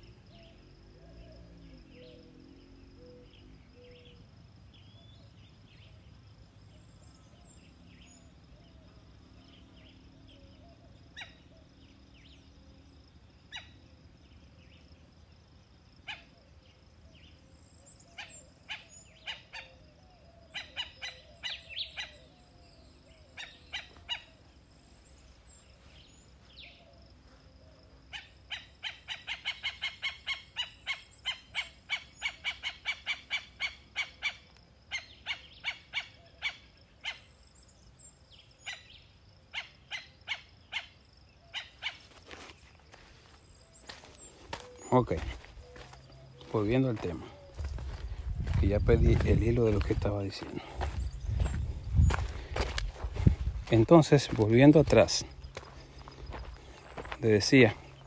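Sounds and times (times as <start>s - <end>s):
bird calling: 2.9s - 6.1s, 16.0s - 58.0s.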